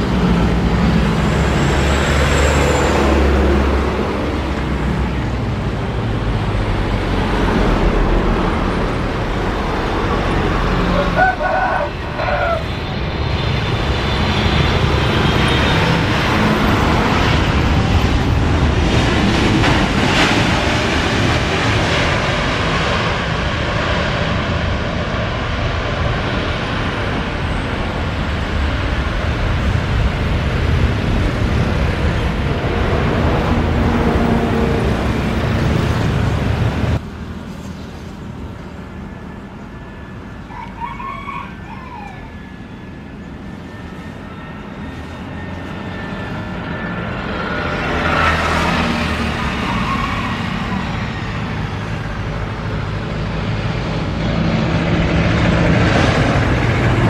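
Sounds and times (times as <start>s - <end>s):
jet engines roaring: 0.0s - 57.0s.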